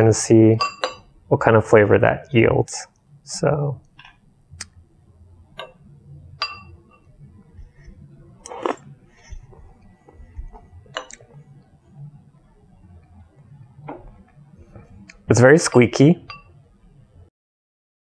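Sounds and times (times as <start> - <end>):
metal spoon clinking on ceramic bowl: 0.6 - 1.1, 6.4 - 7.1, 15.7 - 16.5
quiet chewing: 7.6 - 11.4
short slurp: 8.4 - 8.9.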